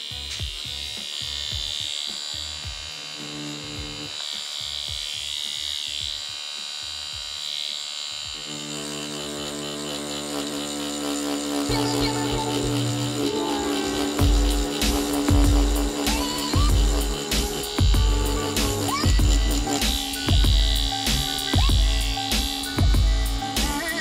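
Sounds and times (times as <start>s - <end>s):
tattoo machine buzzing: 0.0s - 24.0s
background music: 8.4s - 24.0s.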